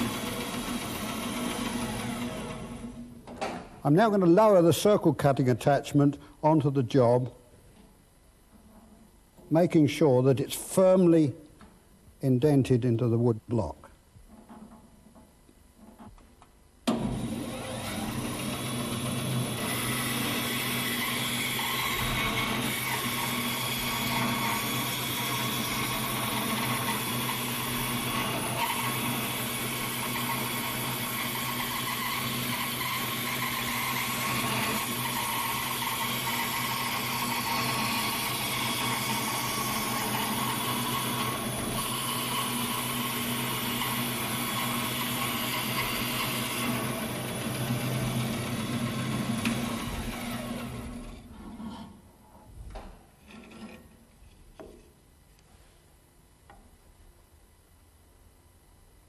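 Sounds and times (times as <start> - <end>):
bandsaw cutting wood: 0.0 - 2.8, 16.9 - 51.8.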